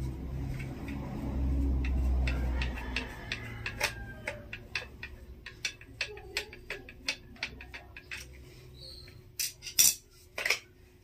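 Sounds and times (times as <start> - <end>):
screwdriver turning screw clicking: 2.6 - 8.4.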